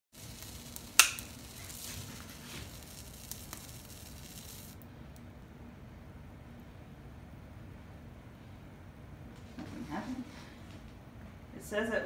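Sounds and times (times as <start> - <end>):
confetti candle fizzing: 0.1 - 4.8
sharp snap: 1.0 - 1.3.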